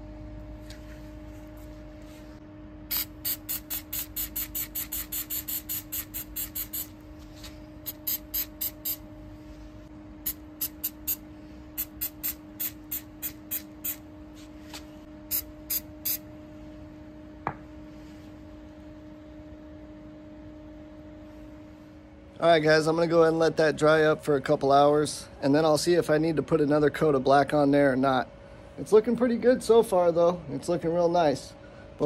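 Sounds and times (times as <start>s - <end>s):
steady low hum: 0.0s - 32.0s
aerosol spray hisses: 2.9s - 6.9s, 11.8s - 14.0s.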